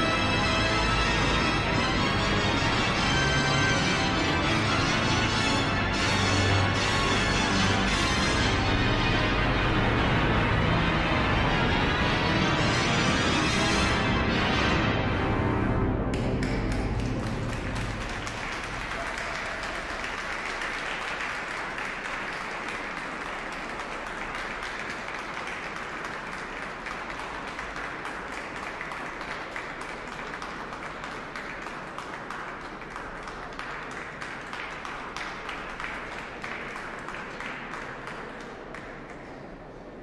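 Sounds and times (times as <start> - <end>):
audience applauding: 16.1 - 39.6.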